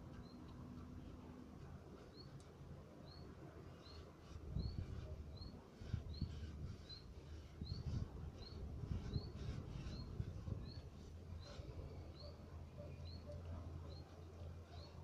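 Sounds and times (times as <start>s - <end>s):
gloved hand scraping clay wall: 3.7s - 12.1s.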